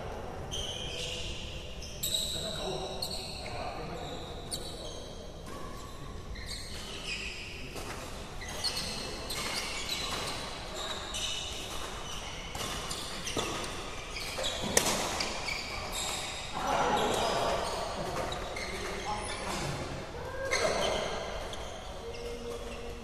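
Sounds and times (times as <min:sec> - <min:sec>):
sneakers squeaking on court: 0:00.5 - 0:19.8, 0:20.4 - 0:23.0
racket hitting shuttlecock: 0:14.6 - 0:15.4.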